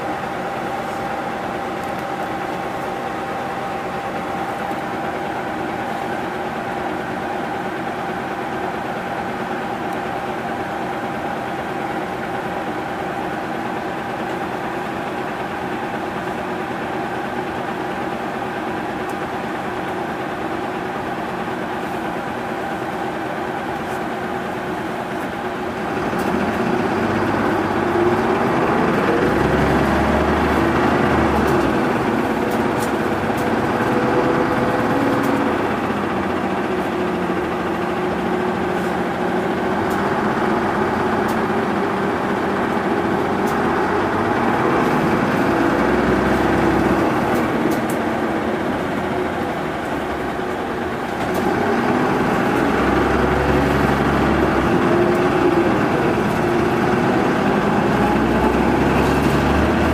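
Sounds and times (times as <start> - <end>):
bus diesel engine idling: 0.0 - 59.9
bus engine revving: 17.2 - 59.9.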